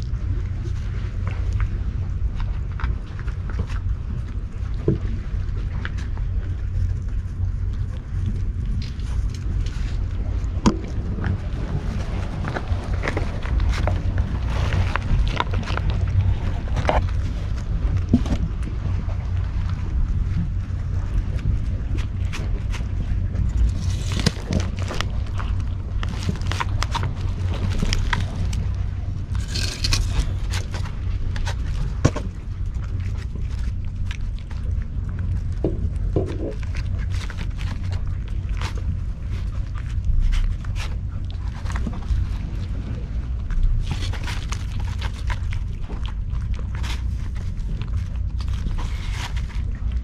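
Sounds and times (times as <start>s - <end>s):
wind rumble on microphone: 0.0s - 50.0s
trash rustling and scraping: 29.2s - 32.4s.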